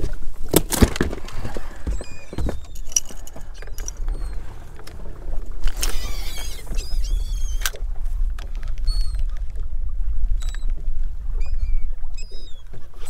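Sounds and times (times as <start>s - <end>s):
water slapping boat hull: 0.0s - 13.0s
wind rumbling on microphone: 0.0s - 13.0s
high chirping bird calls: 6.0s - 7.6s, 11.4s - 12.7s.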